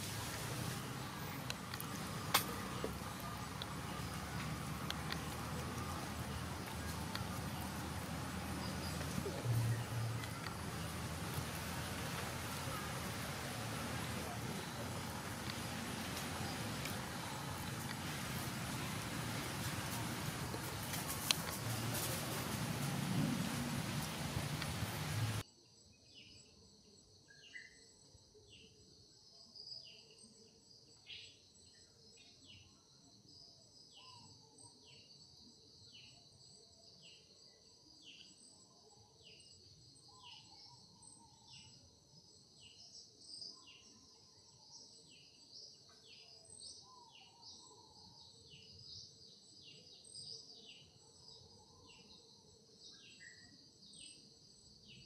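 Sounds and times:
bird chirping: 0:00.0 - 0:25.4
insect drone: 0:00.0 - 0:55.0.

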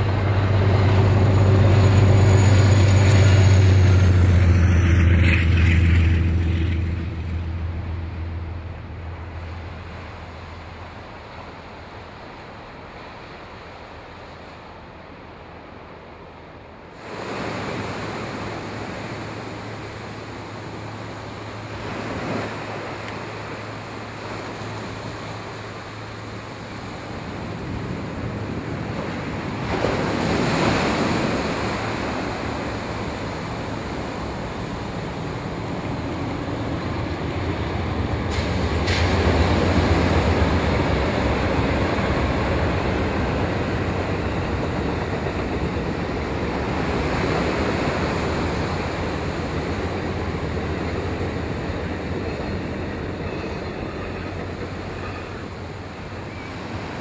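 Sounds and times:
train crossing steel trestle: 0:00.0 - 0:57.0
surf breaking on beach: 0:17.0 - 0:52.2.

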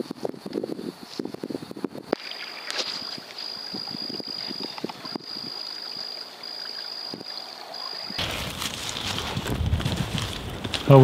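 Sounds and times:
footsteps through dry leaves: 0:08.2 - 0:11.0.

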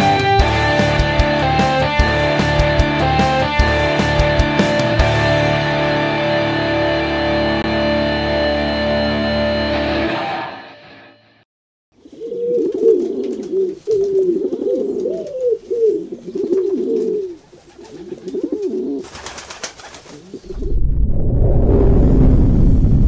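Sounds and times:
background music: 0:00.0 - 0:11.0
pigeons cooing: 0:12.0 - 0:20.7.

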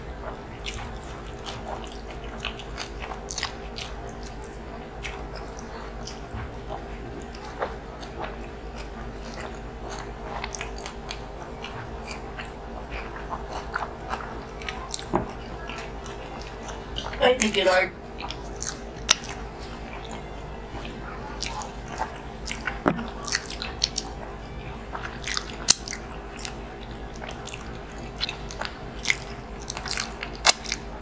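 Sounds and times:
chewing: 0:00.0 - 0:17.2, 0:18.1 - 0:31.0
lip smacks: 0:18.2 - 0:20.2, 0:20.8 - 0:24.2, 0:25.0 - 0:30.9.

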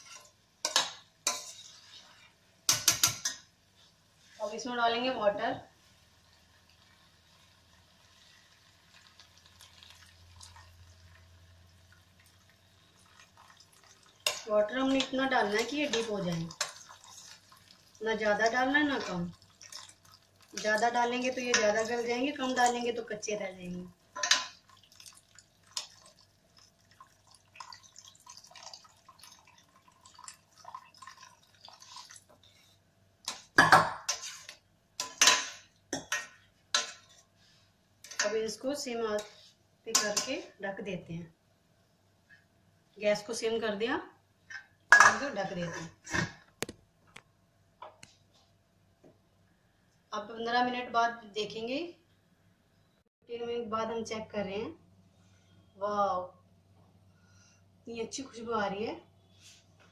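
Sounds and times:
spoon scraping a steel pot: 0:00.0 - 0:02.2, 0:34.1 - 0:35.4
spoon stirring: 0:00.0 - 0:03.4, 0:13.0 - 0:22.9
water poured into a pan: 0:05.9 - 0:22.8, 0:24.0 - 0:32.7
small splashes and drips: 0:08.2 - 0:14.5, 0:15.6 - 0:22.8, 0:24.1 - 0:33.5.

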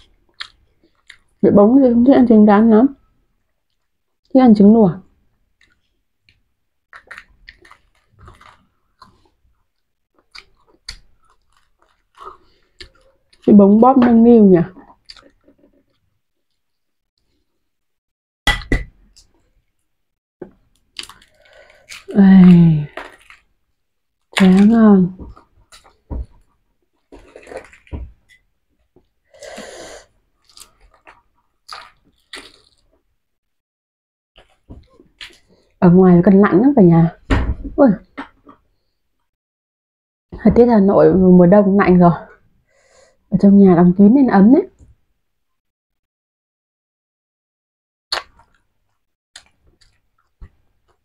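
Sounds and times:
people chewing and biting: 0:00.0 - 0:01.4, 0:05.6 - 0:13.5, 0:14.8 - 0:16.7, 0:20.5 - 0:22.2, 0:22.9 - 0:33.1, 0:34.4 - 0:35.8, 0:48.1 - 0:51.0.

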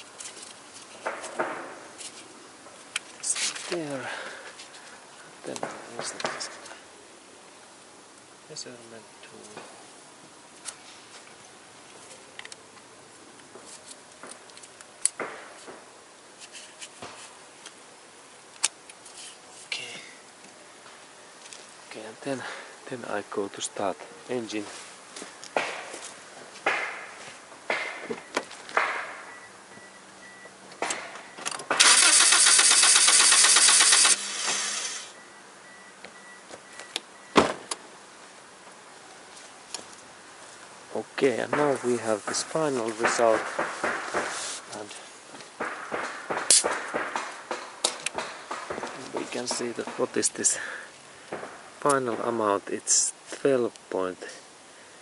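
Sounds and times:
engine cranking on starter: 0:31.7 - 0:35.1
sharp thump: 0:37.4 - 0:37.8.

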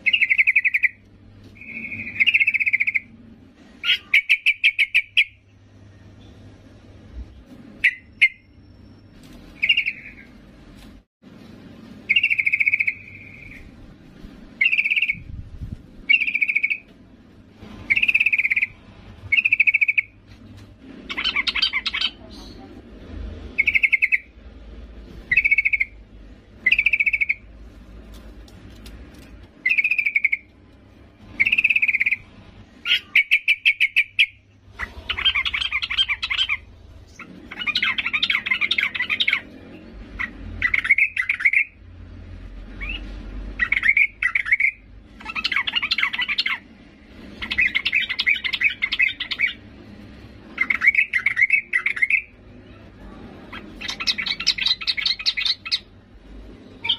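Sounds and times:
bird chirps and chattering: 0:00.0 - 0:01.0, 0:01.6 - 0:03.1, 0:03.8 - 0:05.4, 0:09.6 - 0:10.3, 0:12.1 - 0:13.7, 0:14.6 - 0:15.3, 0:16.0 - 0:16.9, 0:17.9 - 0:20.2, 0:21.0 - 0:22.8, 0:23.6 - 0:24.4, 0:25.3 - 0:26.0, 0:26.6 - 0:27.5, 0:29.6 - 0:30.5, 0:31.3 - 0:41.8, 0:42.8 - 0:46.7, 0:47.3 - 0:49.6, 0:50.5 - 0:52.4, 0:53.4 - 0:55.9.

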